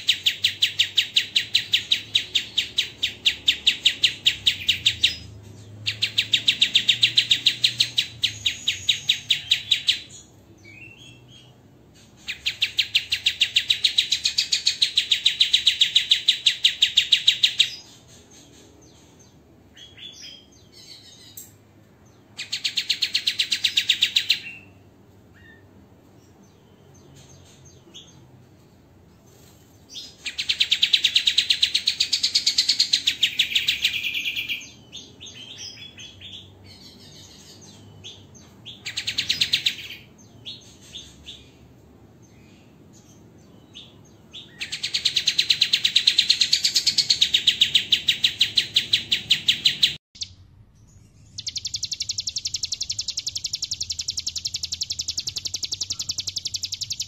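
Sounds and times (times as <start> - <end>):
soft bird chirps: 0.0 - 57.0
songbird rapid trills: 51.2 - 57.0.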